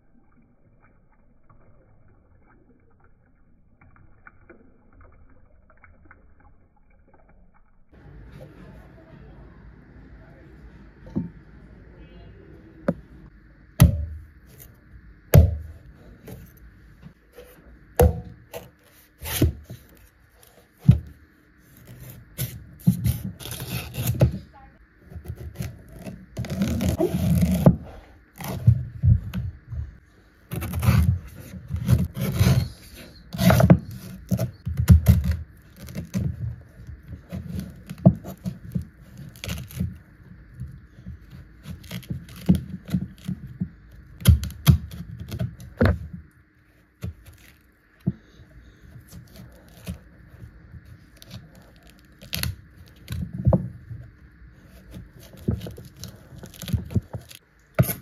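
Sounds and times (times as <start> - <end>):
scraping and tearing husk: 21.6 - 24.5, 25.2 - 28.9, 30.5 - 40.1, 40.9 - 43.6, 47.0 - 53.5, 54.6 - 58.0.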